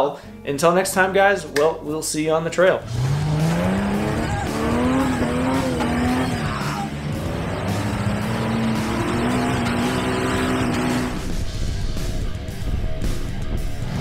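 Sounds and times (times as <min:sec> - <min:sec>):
engine revving under load: 0:02.8 - 0:11.6.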